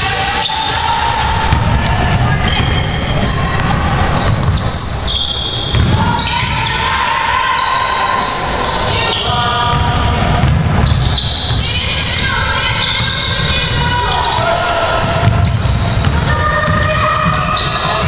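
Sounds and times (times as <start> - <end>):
basketball dribbling: 9.2 - 18.0.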